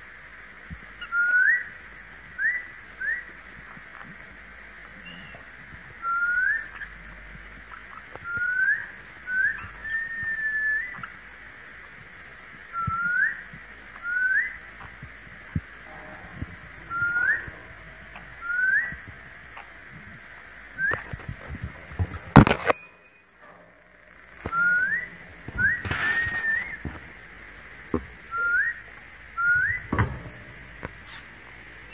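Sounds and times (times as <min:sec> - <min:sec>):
bird whistle: 0:05.0 - 0:05.4, 0:06.0 - 0:06.8, 0:08.2 - 0:11.1, 0:12.7 - 0:14.6, 0:16.3 - 0:19.1, 0:24.4 - 0:26.9, 0:28.3 - 0:31.3
loud knock and rattle: 0:14.9 - 0:31.9.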